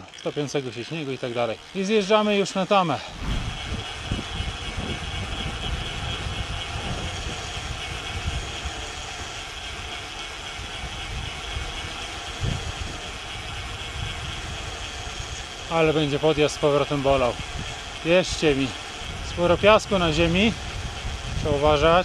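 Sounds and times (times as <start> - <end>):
wind buffeting microphone: 3.0 - 9.0, 16.3 - 22.0.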